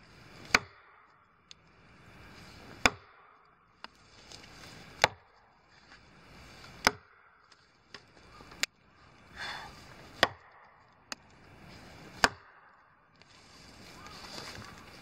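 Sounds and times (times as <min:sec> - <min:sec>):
axe chopping wood: 0:00.4 - 0:01.1, 0:02.6 - 0:04.0, 0:05.0 - 0:05.3, 0:06.7 - 0:07.2, 0:10.1 - 0:11.3, 0:12.1 - 0:12.7.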